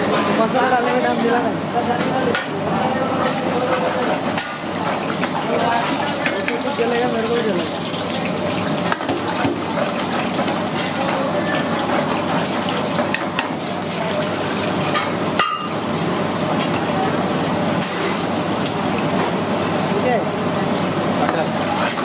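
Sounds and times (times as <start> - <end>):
gravy sizzling in a pan: 3.2 - 22.0
ladle stirring: 3.3 - 15.2.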